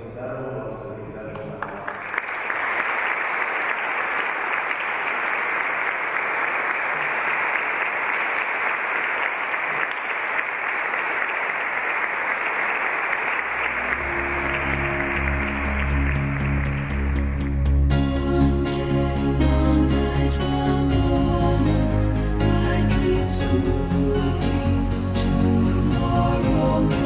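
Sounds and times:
congregation applauding: 1.3s - 18.0s
music with low sustained notes: 13.6s - 27.0s.

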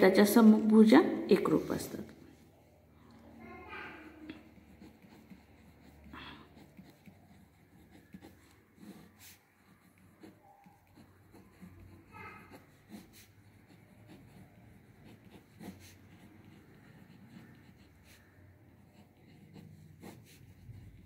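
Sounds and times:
pen scratching on paper: 4.3s - 21.0s.

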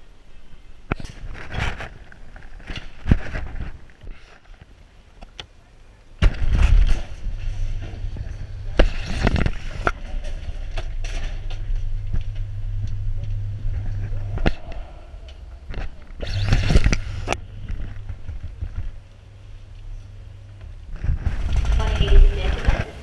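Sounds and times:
steady low hum: 0.0s - 23.0s
camera handling noise: 15.7s - 18.9s.

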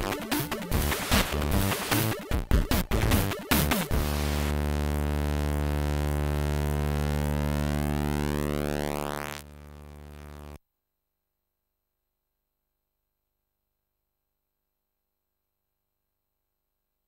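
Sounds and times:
buzzy electronic tone: 0.0s - 10.6s.

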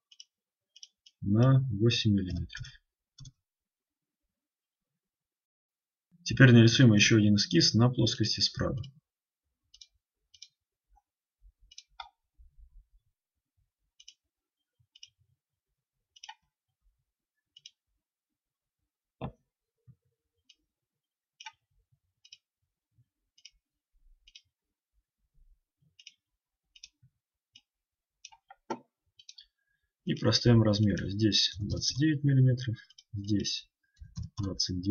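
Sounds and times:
computer mouse clicking: 16.2s - 16.4s, 17.6s - 17.8s, 21.4s - 21.6s, 27.6s - 29.5s.

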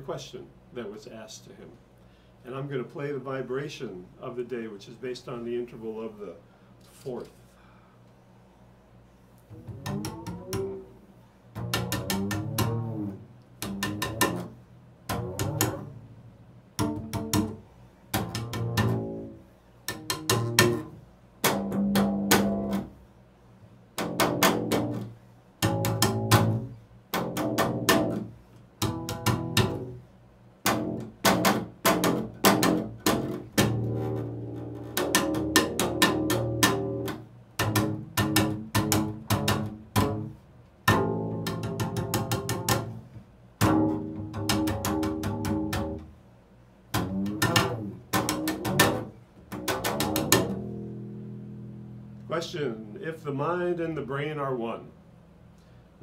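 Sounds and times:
bowed double bass: 9.4s - 23.1s, 23.7s - 53.2s.

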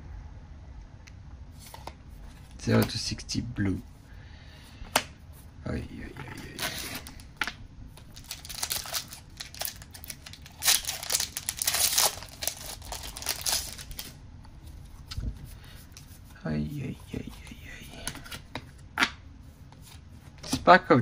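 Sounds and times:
wrapper tearing and crinkling: 8.0s - 14.2s.

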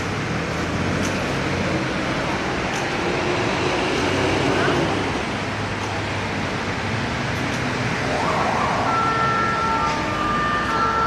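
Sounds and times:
street noise: 0.0s - 11.0s
emergency vehicle siren: 7.9s - 11.0s.

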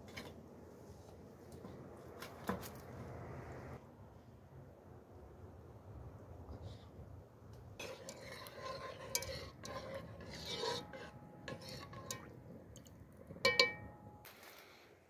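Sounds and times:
fork beating egg in metal pot: 7.8s - 13.9s.

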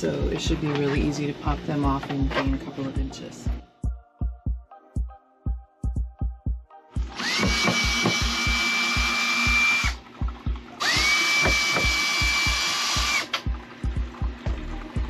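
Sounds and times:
background music with beat: 1.8s - 15.0s
cordless drill whine: 7.0s - 10.0s, 10.8s - 13.4s.

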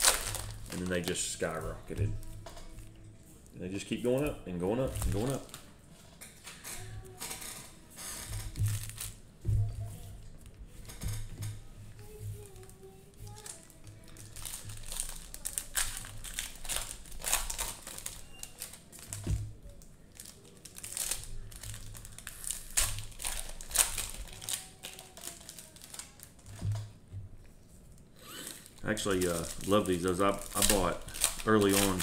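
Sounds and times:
cellophane packs crinkling: 0.0s - 3.0s, 4.2s - 5.7s, 8.0s - 9.2s, 12.1s - 27.0s, 27.9s - 32.0s.

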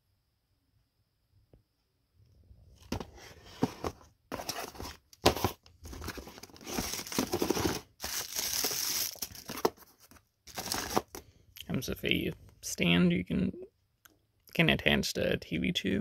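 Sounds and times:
cardboard rustling and scraping: 2.8s - 11.2s
plastic bags shifting: 3.1s - 11.2s.

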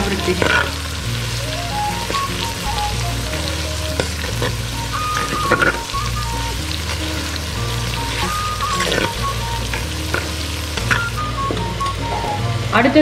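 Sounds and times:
food sizzling in hot oil: 0.0s - 12.4s
soft background music: 0.0s - 13.0s.

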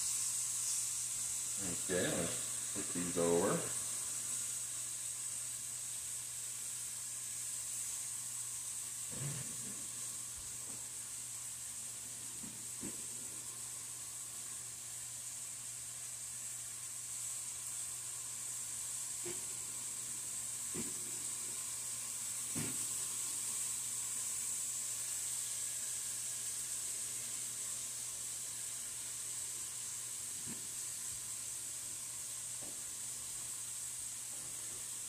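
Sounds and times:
steak sizzling in a frying pan: 0.0s - 35.0s.

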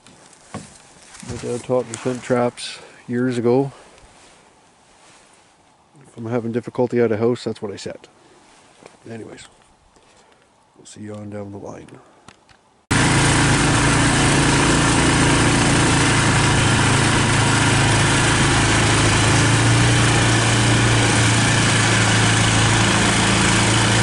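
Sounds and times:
small boat engine running: 12.9s - 24.0s.

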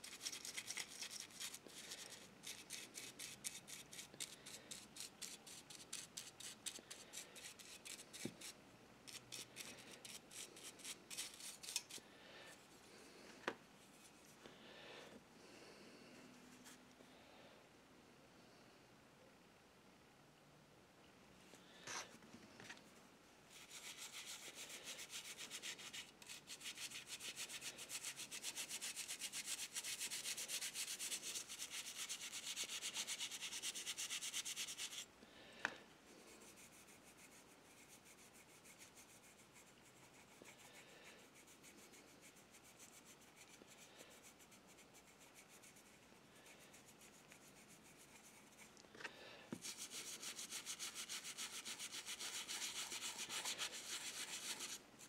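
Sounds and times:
brush scrubbing metal: 0.0s - 11.9s, 49.6s - 54.8s.

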